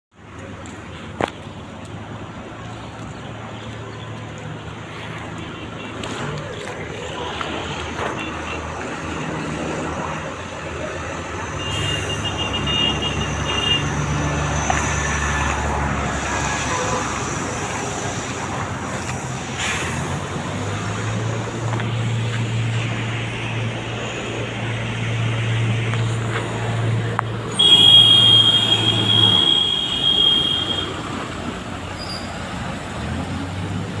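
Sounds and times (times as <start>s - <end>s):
steady traffic noise: 0.1s - 34.0s
vehicle engines humming: 0.2s - 34.0s
loud high steady tone: 27.6s - 31.0s.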